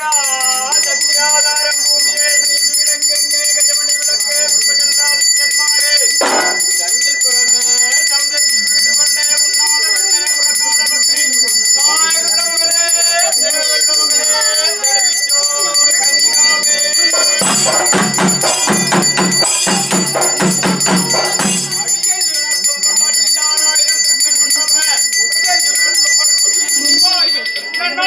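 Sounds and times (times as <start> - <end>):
bells and cymbals ringing: 0.0 - 28.0
fast dense drumming: 17.4 - 22.0.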